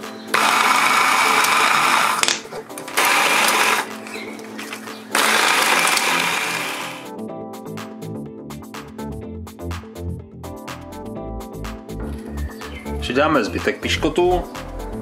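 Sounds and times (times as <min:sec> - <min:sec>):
background music: 0:00.0 - 0:15.0
blender grinding: 0:00.3 - 0:07.1.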